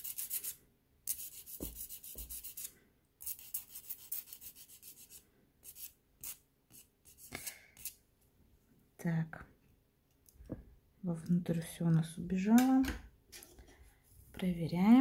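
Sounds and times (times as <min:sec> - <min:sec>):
nail file rasping on nail: 0:00.0 - 0:08.0.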